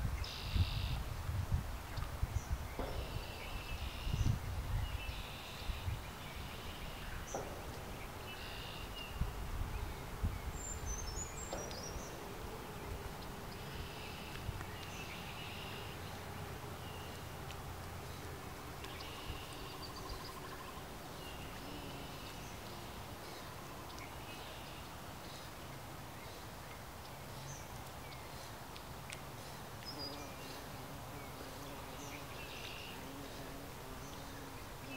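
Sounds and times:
small birds singing: 0.0s - 1.0s, 1.6s - 34.9s
wind rumble: 0.0s - 13.6s.

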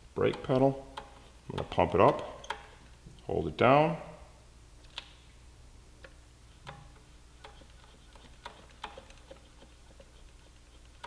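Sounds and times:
low steady hum: 0.0s - 11.0s
wrench clicking and tapping: 6.6s - 9.4s.

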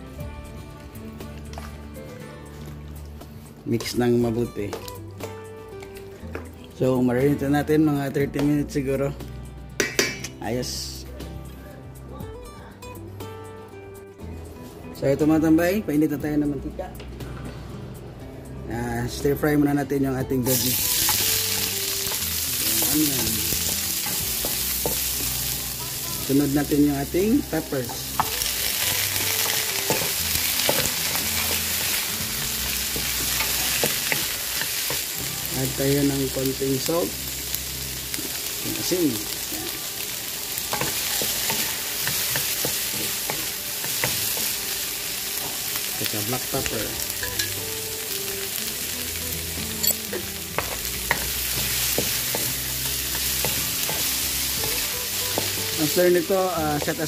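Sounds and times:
vegetables sizzling in hot oil: 20.4s - 57.0s.

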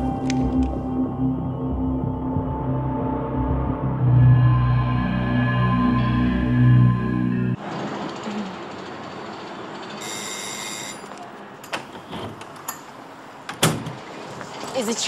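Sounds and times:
urban background noise: 11.0s - 15.0s.

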